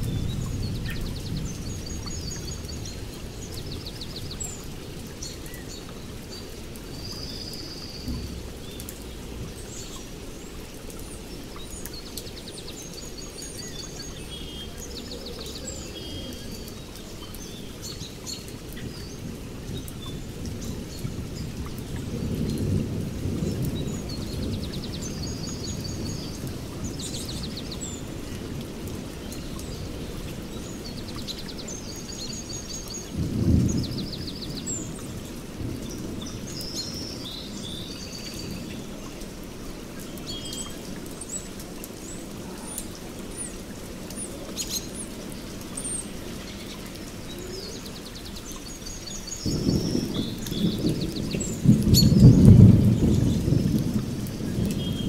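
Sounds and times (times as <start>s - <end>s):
steady rain: 0.0s - 55.0s
birds chirping: 29.2s - 53.7s
thunder rumbling: 49.4s - 55.0s.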